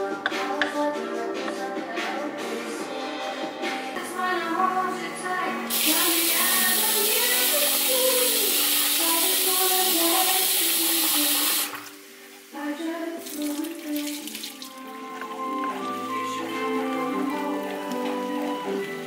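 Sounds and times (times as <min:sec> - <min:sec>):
tap water running into metal pot: 0:05.7 - 0:12.0, 0:13.2 - 0:19.0.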